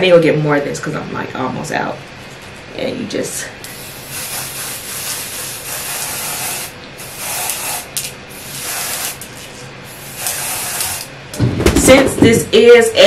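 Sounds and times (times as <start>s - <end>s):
aerosol can hissing: 3.7s - 9.2s, 9.9s - 11.1s.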